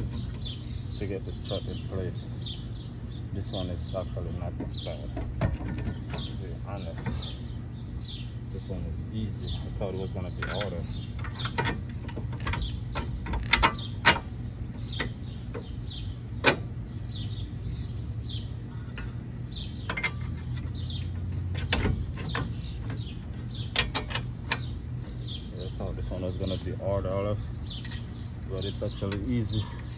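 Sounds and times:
birds chirping: 0.0s - 29.9s
metal clicks and knocks: 4.4s - 7.2s, 10.3s - 14.3s, 19.8s - 24.8s.

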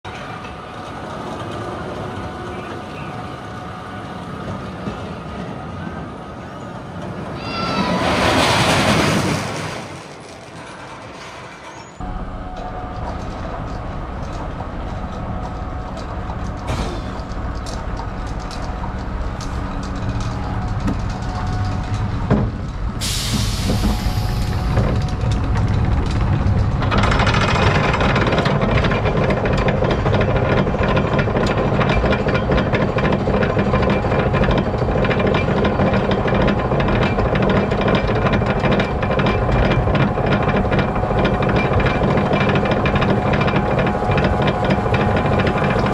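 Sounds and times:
roller coaster train rattling: 0.1s - 45.9s
lift-hill chain clanking: 10.0s - 45.9s
brakes hissing: 22.1s - 27.6s.

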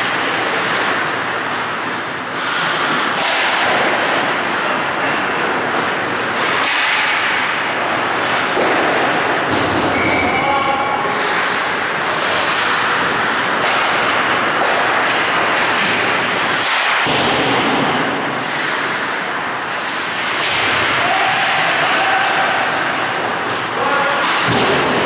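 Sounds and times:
skate blades scraping ice: 0.0s - 9.5s, 11.1s - 25.0s
hockey sticks clacking: 0.0s - 25.0s
puck knocking against boards: 2.5s - 7.6s, 8.2s - 9.9s, 12.2s - 19.1s, 19.7s - 25.0s.

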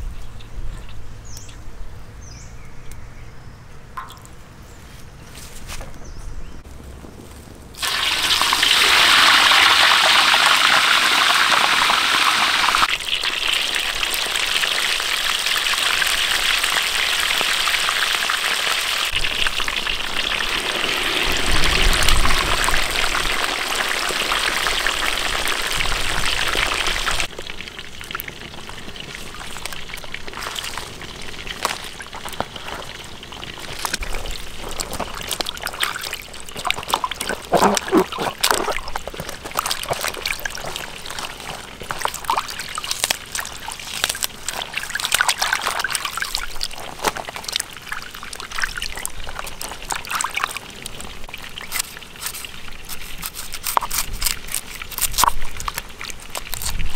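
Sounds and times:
oil sizzling in a wok: 7.8s - 33.7s
water trickling and splashing: 7.8s - 56.9s.

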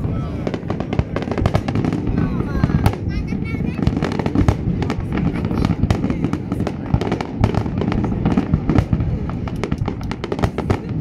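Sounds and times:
fireworks cracks and pops: 0.0s - 11.0s
low rumble of bursts: 0.0s - 11.0s.

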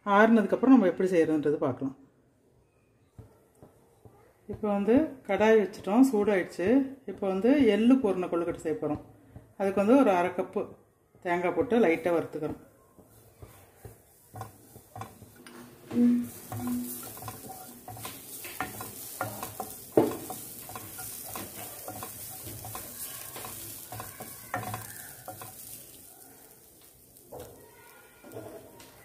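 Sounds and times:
light sizzle: 3.2s - 29.0s
spatula scraping pan: 11.9s - 29.0s.

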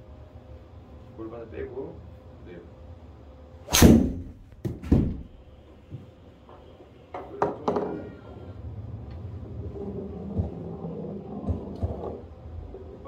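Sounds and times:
golf club striking ball: 3.7s - 5.4s.

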